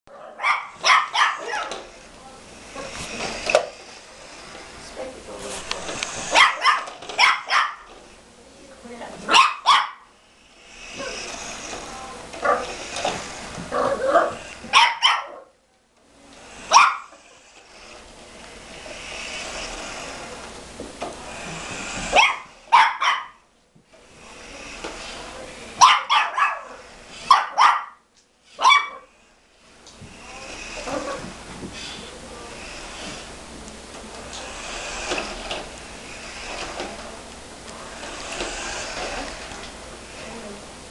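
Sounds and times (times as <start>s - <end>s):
small dog barking: 0.1s - 1.8s, 6.3s - 7.9s, 9.3s - 10.1s, 13.9s - 15.5s, 16.7s - 17.1s, 22.1s - 23.4s, 25.8s - 28.0s, 28.6s - 29.1s
dog yapping softly: 0.4s - 1.7s
toy truck electric motor whirring: 2.6s - 4.8s, 5.6s - 7.2s, 10.4s - 14.7s, 16.4s - 22.7s, 24.0s - 25.7s, 29.1s - 33.3s, 34.1s - 40.5s.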